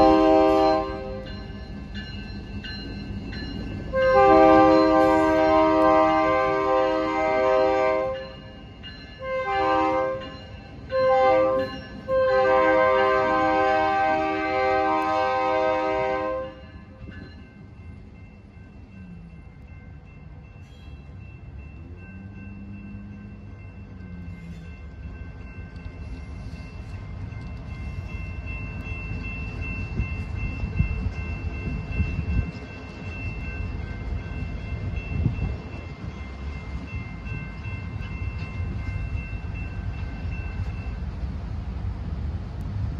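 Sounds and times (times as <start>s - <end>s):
locomotive air horn blasts: 0.0s - 1.2s, 3.9s - 8.3s, 9.2s - 10.3s, 10.9s - 16.7s
freight train rumbling: 0.0s - 42.9s
railroad crossing bells ringing: 0.0s - 42.9s.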